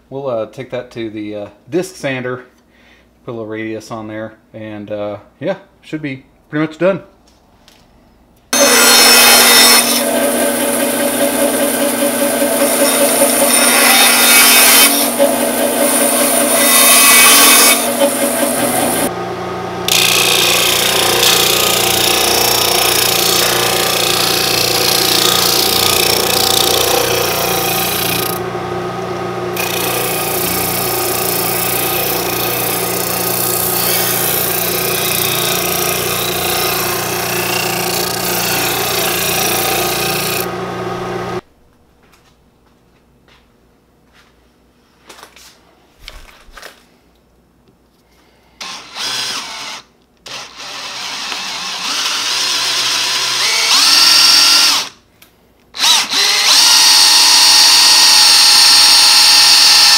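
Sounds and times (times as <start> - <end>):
wood rasping on sanding disc: 8.6 - 19.1, 19.9 - 28.4, 29.6 - 41.2
sander motor hum: 8.6 - 41.4.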